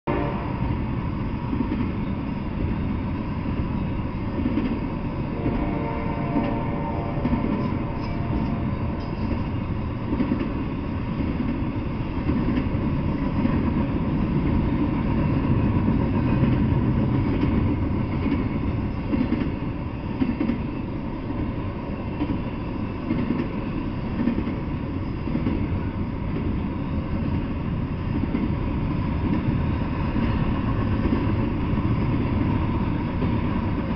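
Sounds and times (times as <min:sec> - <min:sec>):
train wheels rumbling on rails: 0:00.1 - 0:33.9.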